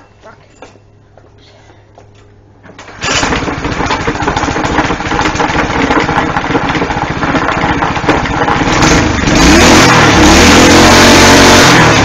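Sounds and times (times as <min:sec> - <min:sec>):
small engine running steadily: 0:03.0 - 0:12.0.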